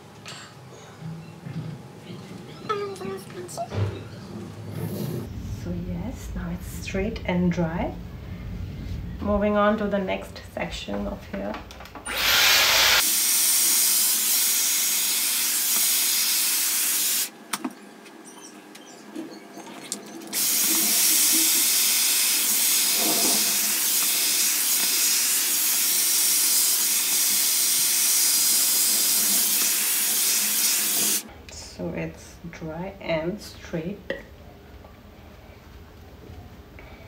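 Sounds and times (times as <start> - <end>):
hair dryer blowing air: 12.1 - 17.3, 20.4 - 31.3.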